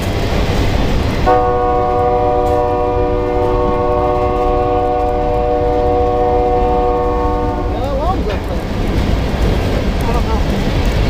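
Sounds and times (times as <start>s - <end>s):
freight cars rumbling on rails: 0.0s - 11.0s
train air horn chord: 1.3s - 8.0s.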